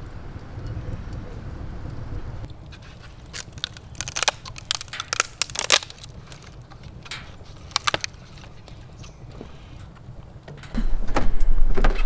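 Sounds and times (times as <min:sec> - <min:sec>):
wood fire crackling and popping: 0:01.9 - 0:09.0.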